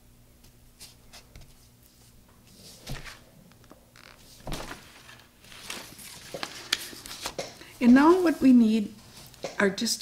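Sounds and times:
paper rustling: 0.8 - 3.2, 4.0 - 9.3.

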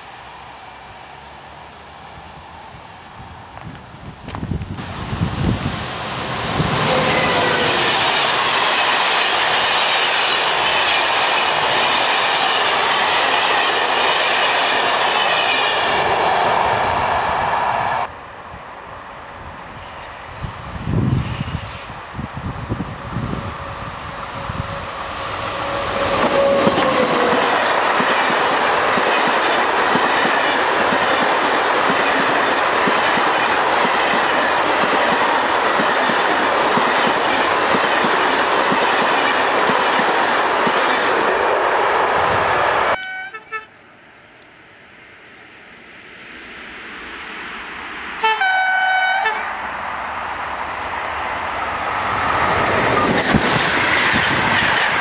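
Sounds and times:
approaching train: 0.0 - 55.0
train wheels clattering on rails: 6.5 - 15.8, 25.6 - 41.3
train horn: 6.8 - 7.8, 24.3 - 27.5, 42.9 - 43.8, 48.2 - 49.6
short horn-like tone: 43.0 - 43.8, 48.2 - 49.4.

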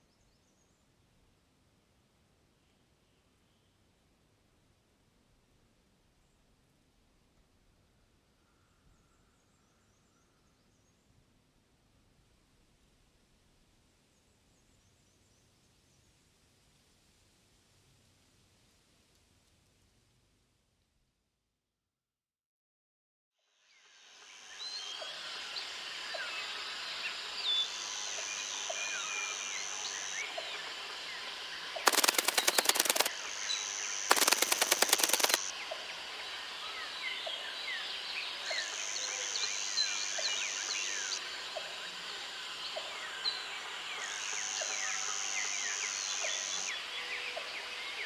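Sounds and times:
high insect buzz: 31.8 - 35.5
loud rapid rattles: 31.9 - 33.1, 34.1 - 35.5
small birds chirping: 31.9 - 35.5.

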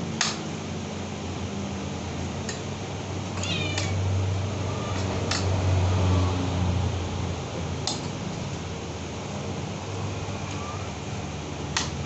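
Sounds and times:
electric fan hissing: 0.0 - 12.0
sharp click: 0.2 - 0.4.

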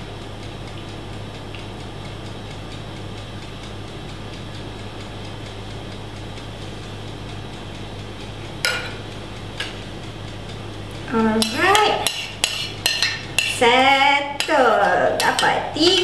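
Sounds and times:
steady low hum: 0.0 - 16.0
metal spoon clinking a bowl: 11.4 - 13.6.

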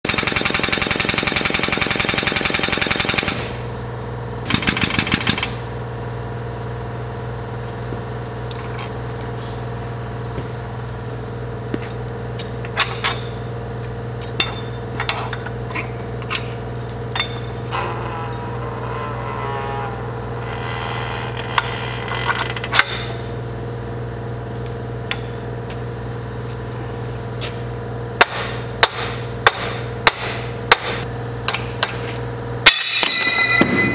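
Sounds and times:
loud rapid mechanical rattle: 0.1 - 3.7, 4.4 - 5.8
steady shop hum: 0.1 - 33.9
metal clinks and knocks: 8.4 - 9.0, 12.4 - 13.5, 14.1 - 18.5, 32.7 - 33.9.

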